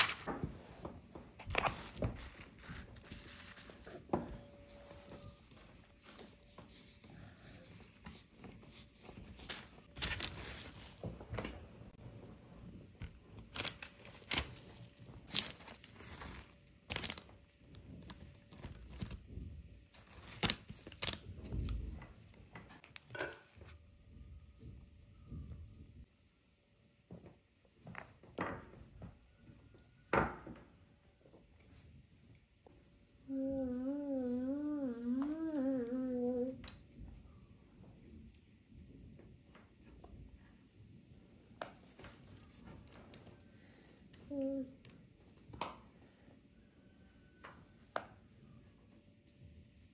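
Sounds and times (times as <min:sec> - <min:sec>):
food packaging rustling: 0:13.4 - 0:17.4.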